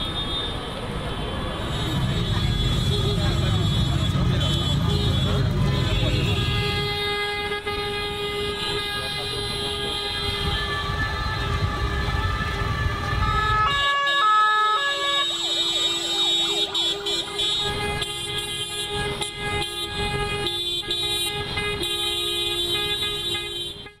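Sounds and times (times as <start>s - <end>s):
vehicle horns: 0.0s - 24.0s
two-tone siren: 9.7s - 20.6s
rising and falling siren wails: 10.2s - 20.1s.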